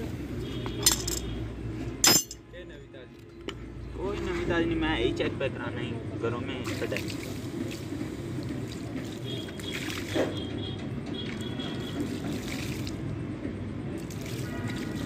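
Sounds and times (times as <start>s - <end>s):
water splashing on metal: 6.6s - 13.2s, 14.0s - 15.0s
water trickling onto ground: 6.6s - 13.2s, 14.0s - 15.0s.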